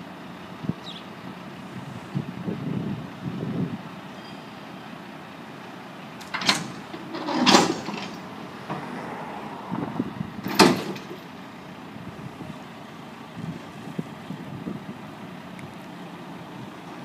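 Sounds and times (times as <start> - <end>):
truck engine running: 0.0 - 17.0
plow blade clunks: 6.2 - 8.9, 10.4 - 11.3.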